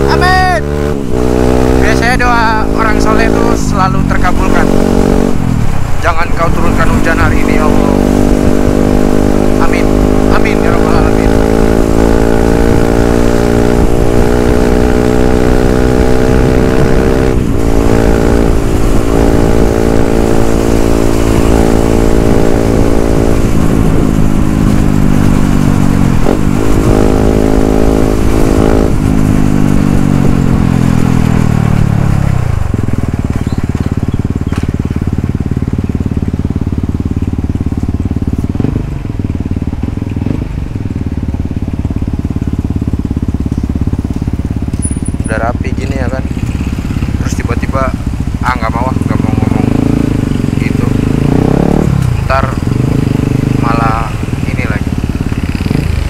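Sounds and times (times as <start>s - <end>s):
motorcycle engine running: 0.0s - 56.0s
wind noise: 11.0s - 35.0s, 49.0s - 56.0s.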